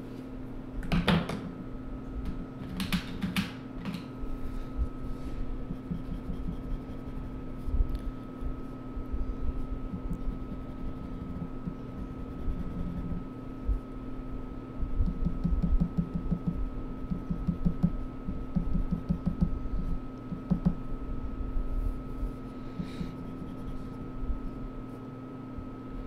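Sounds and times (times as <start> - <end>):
steady electrical hum: 0.0 - 26.0
pen scratching on paper: 5.7 - 7.4, 10.0 - 13.2.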